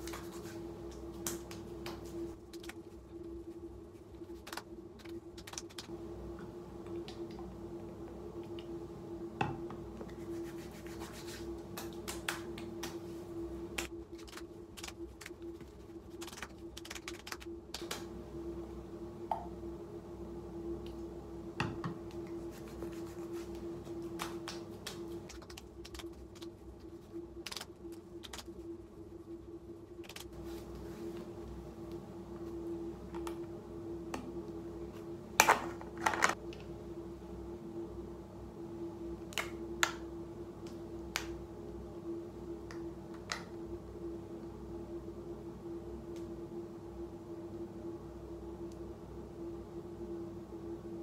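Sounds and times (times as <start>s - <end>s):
hands patting skin: 0.0s - 5.9s, 10.0s - 18.1s, 22.1s - 28.5s
light rubbing of skin: 0.0s - 5.9s, 10.1s - 13.2s, 22.2s - 28.4s
steady low hum: 0.0s - 51.0s.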